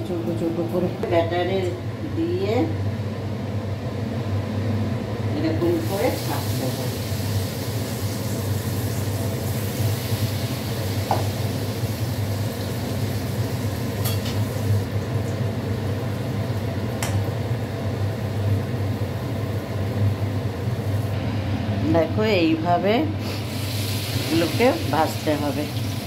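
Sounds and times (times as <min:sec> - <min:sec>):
food deep-frying in oil: 0:05.6 - 0:21.2, 0:23.2 - 0:26.0.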